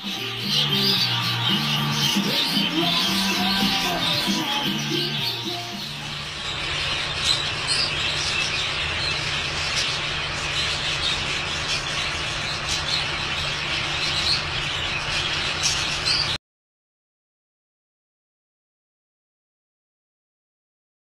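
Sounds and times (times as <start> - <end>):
budgerigars chattering and chirping: 0.0 - 16.4.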